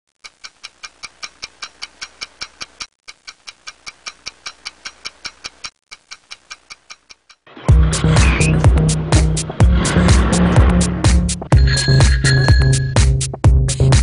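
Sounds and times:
rapid even ticking: 0.1 - 10.3.

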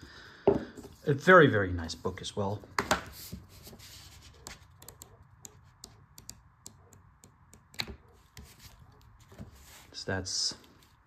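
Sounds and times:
paper pages rustling: 3.1 - 4.7, 8.1 - 10.0.

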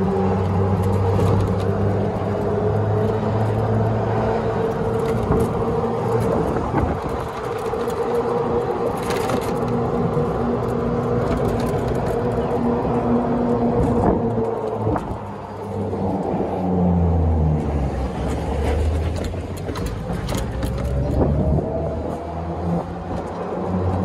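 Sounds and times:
golf cart motor hum: 0.0 - 24.0
tyre and road noise: 0.0 - 24.0.

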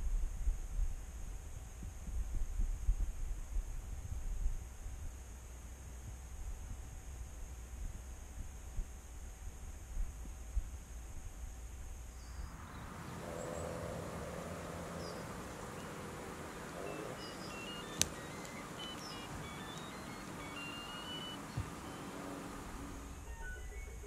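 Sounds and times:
outdoor background noise: 0.0 - 24.0
faint high beeping tones: 12.5 - 24.0.

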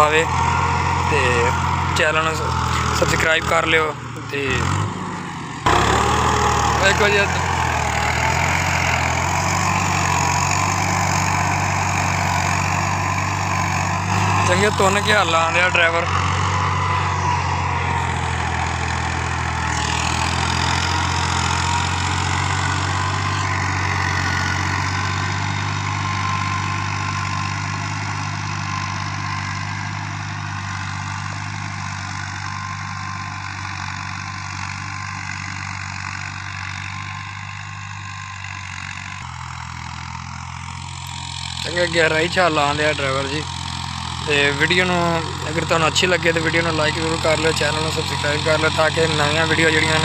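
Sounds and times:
cultivator dragging through soil: 0.0 - 50.0
tractor diesel engine running: 0.0 - 50.0.

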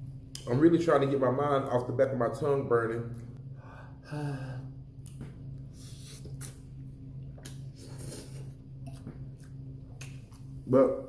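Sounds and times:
low hum: 0.0 - 11.0
chewing: 7.4 - 10.6.

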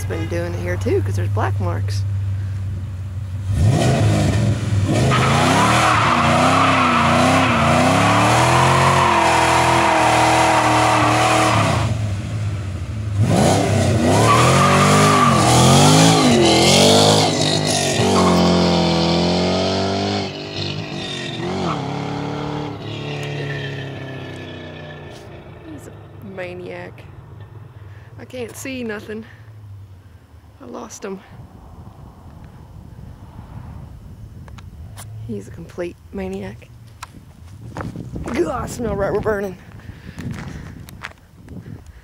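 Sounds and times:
car engine revving hard: 3.4 - 26.2
tyres spinning and squealing: 4.9 - 11.9, 14.0 - 29.4.

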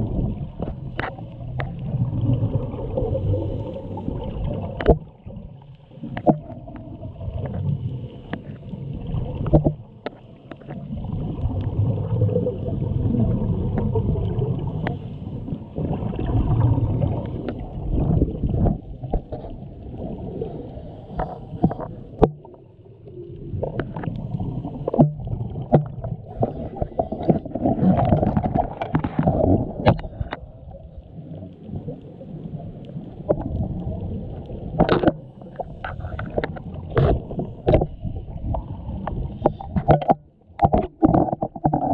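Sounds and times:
underwater regulator bubbles: 0.0 - 41.9
sharp clicks and knocks: 39.0 - 41.9.

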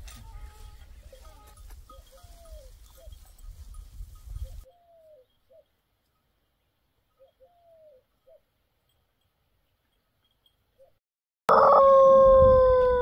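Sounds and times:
low wind rumble: 11.7 - 13.0.

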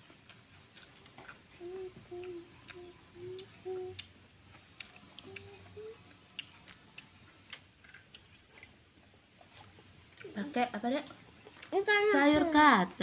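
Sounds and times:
clicks and taps of eating: 0.1 - 8.8
person humming: 1.5 - 4.1, 5.2 - 6.2.

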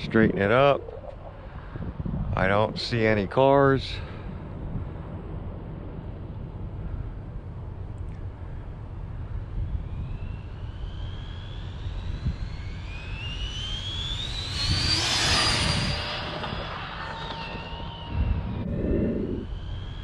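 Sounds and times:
wind on microphone: 0.0 - 10.6, 14.2 - 19.6
rc car motor whine: 9.4 - 20.0.

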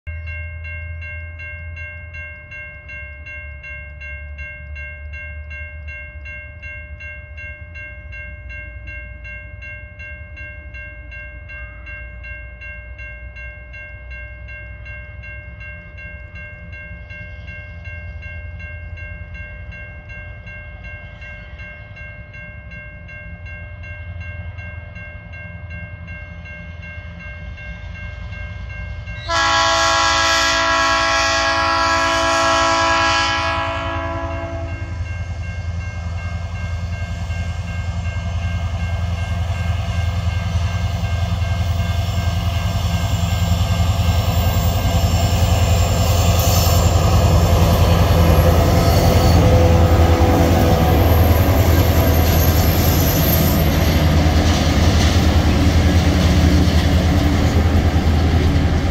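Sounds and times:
diesel locomotive engine rumble: 0.1 - 58.9.

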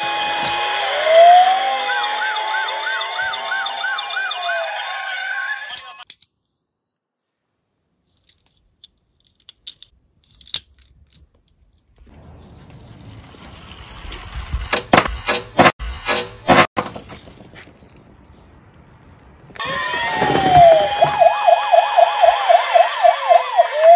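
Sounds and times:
warbling police siren: 0.0 - 6.0, 19.6 - 23.9
toy car rattling down wooden slope: 12.7 - 16.2.

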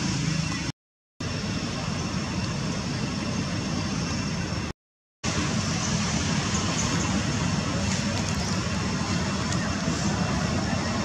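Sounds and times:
low rumble with hiss: 0.0 - 4.7, 5.3 - 11.0.

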